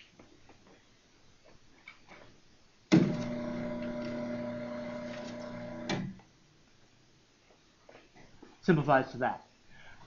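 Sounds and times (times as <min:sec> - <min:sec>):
machine hum with held tones: 0:03.0 - 0:06.2.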